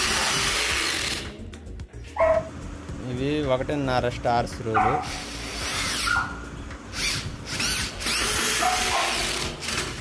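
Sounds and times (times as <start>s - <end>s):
cordless drill driving screws: 0.0s - 1.4s, 5.0s - 6.2s, 6.9s - 10.0s.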